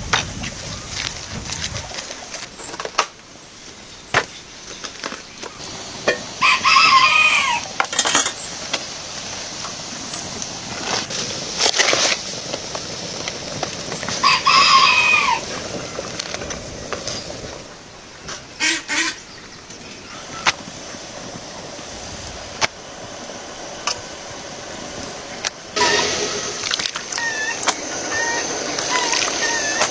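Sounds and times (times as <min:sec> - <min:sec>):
rooster crowing: 0:06.4 - 0:07.7, 0:14.2 - 0:15.5, 0:27.1 - 0:29.9.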